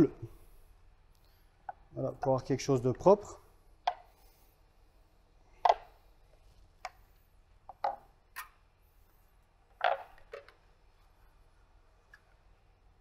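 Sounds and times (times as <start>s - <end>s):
plastic moulds clicking on stone: 5.6s - 6.0s.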